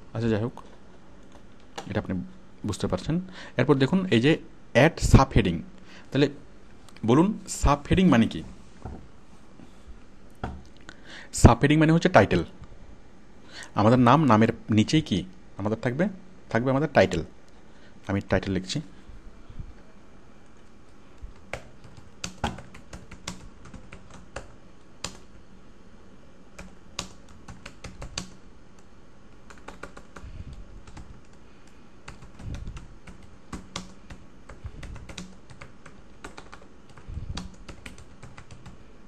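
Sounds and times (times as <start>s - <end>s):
keyboard typing clicks: 32.1s - 38.8s.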